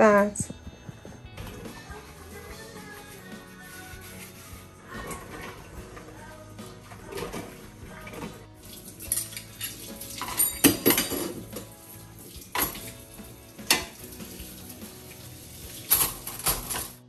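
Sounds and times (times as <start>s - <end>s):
dishes clattering in a sink: 5.0s - 15.1s, 15.7s - 17.0s.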